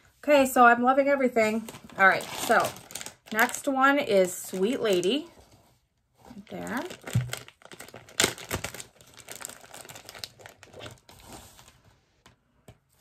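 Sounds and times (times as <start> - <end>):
plastic bag crinkling: 1.5 - 5.3, 6.3 - 11.8.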